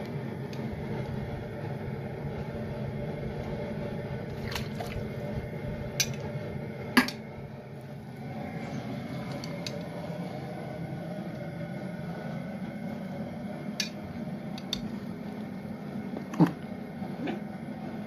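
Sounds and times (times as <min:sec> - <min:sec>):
steady low rumble: 0:00.0 - 0:18.0
wet squishing plops: 0:04.3 - 0:05.2.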